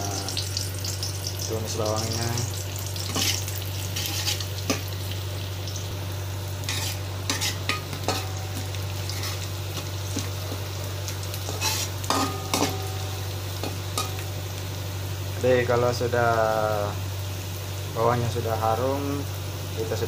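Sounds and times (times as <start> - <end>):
shallots sizzling in a wok: 0.0 - 20.0
steady low hum: 0.0 - 20.0
metal spatula scraping a wok: 3.0 - 4.9, 6.6 - 10.3, 11.4 - 14.2.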